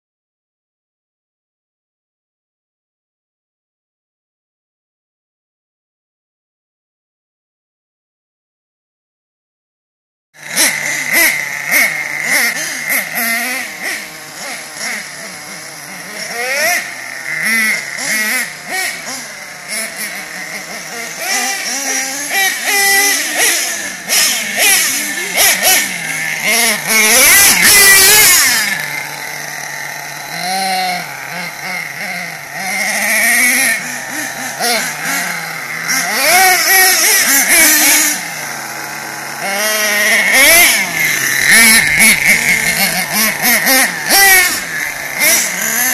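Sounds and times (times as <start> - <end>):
small nitro engines revving: 10.4 - 45.9.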